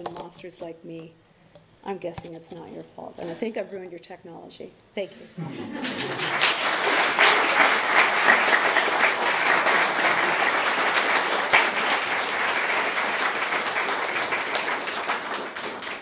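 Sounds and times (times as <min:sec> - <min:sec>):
audience applauding: 0:05.7 - 0:16.0.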